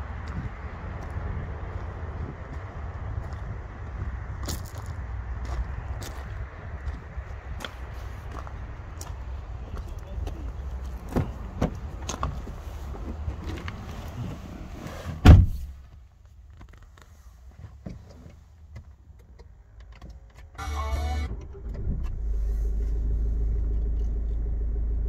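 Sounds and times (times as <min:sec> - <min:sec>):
car door opening: 0:13.0 - 0:15.8
car door slamming shut: 0:15.2 - 0:15.7
car engine cranking and starting: 0:19.1 - 0:25.0.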